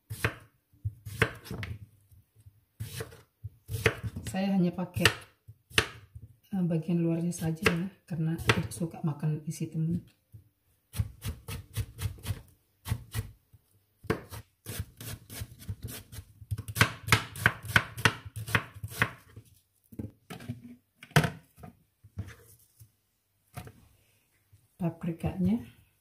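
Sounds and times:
knife chopping on cutting board: 0:00.1 - 0:01.7, 0:02.8 - 0:04.3, 0:14.0 - 0:19.2.

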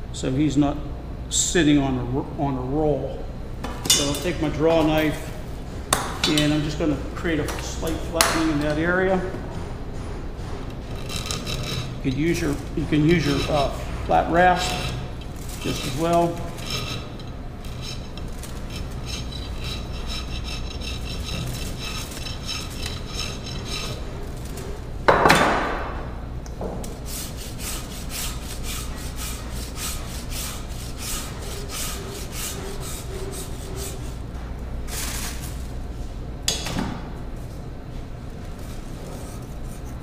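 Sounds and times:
rasp grating on plaster: 0:10.8 - 0:24.8, 0:27.0 - 0:34.2
draw knife scraping plaster: 0:10.9 - 0:24.8, 0:27.0 - 0:34.2.

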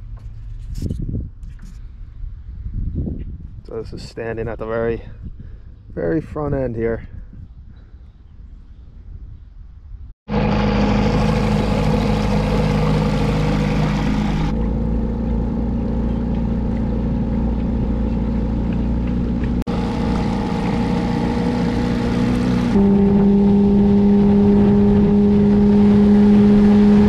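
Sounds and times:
outboard motor running: 0:10.3 - 0:27.0.

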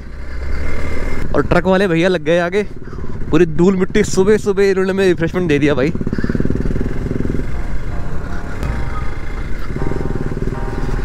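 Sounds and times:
motorcycle engine running: 0:00.0 - 0:11.0
soft background music: 0:07.4 - 0:11.0.

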